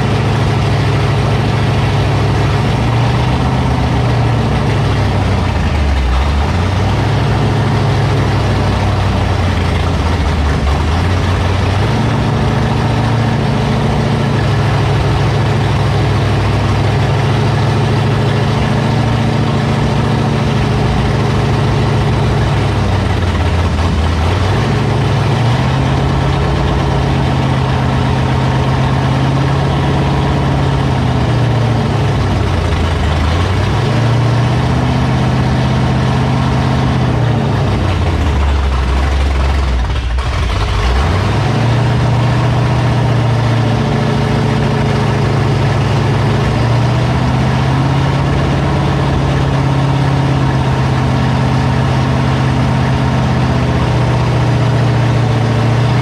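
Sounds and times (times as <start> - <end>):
car engine revving: 0.0 - 56.0.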